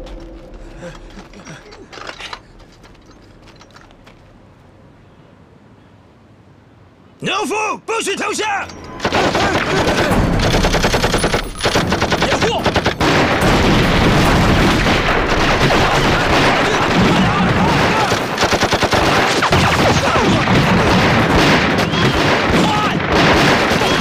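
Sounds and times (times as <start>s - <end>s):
machine-gun bursts: 9.0s - 24.0s
rifle shots: 9.0s - 24.0s
men shouting: 15.8s - 18.4s, 21.8s - 23.1s.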